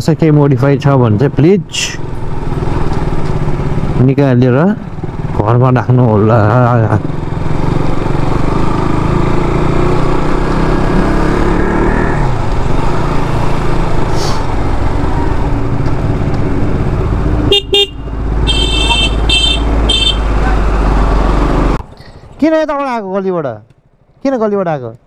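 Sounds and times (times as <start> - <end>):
motorcycle engine: 0.0 - 25.0
vehicle horn blast: 17.5 - 20.5.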